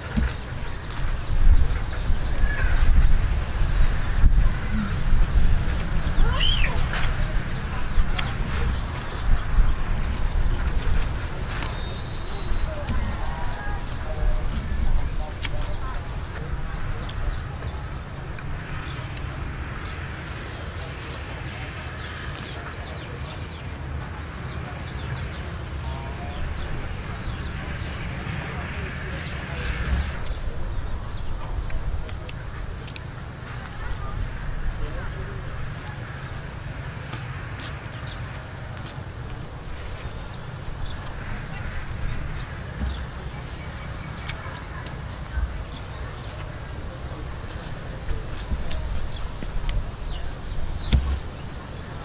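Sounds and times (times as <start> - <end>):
small birds chirping: 0.0 - 52.0
soft thumps: 50.8 - 51.4.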